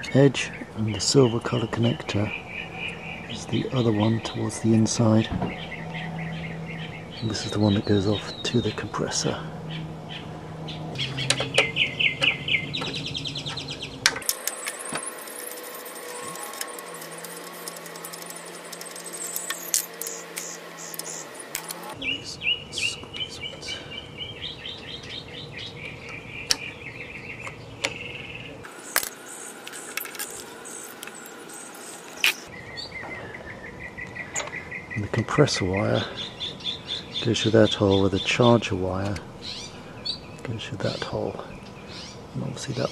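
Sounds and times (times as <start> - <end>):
small birds chirping: 0.0 - 42.9
sharp clicks: 11.0 - 22.0.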